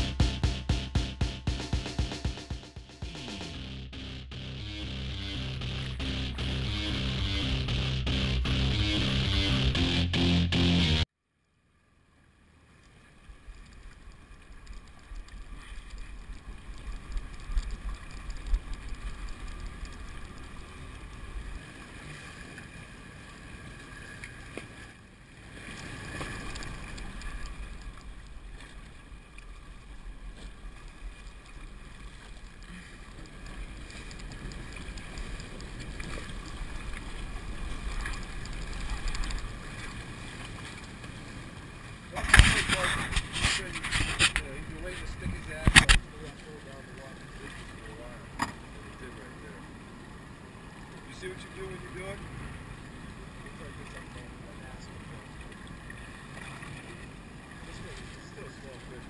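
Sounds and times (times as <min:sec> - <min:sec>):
boat engines humming: 0:00.0 - 0:11.1, 0:12.6 - 0:59.0
water washing against hull: 0:12.6 - 0:59.0.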